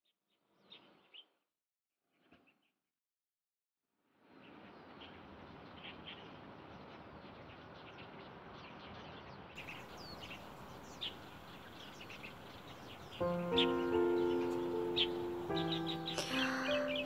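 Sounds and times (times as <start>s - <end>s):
faint outdoor hiss: 4.3s - 17.0s
birds chirping: 4.5s - 17.0s
background music: 13.2s - 17.0s.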